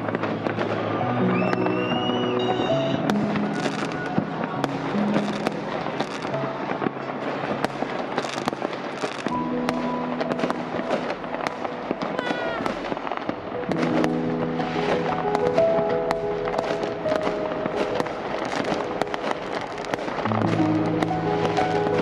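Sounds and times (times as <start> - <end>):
rising firework whistle: 0.0 - 6.9
fireworks crackling and banging: 0.0 - 22.0
music: 0.0 - 22.0.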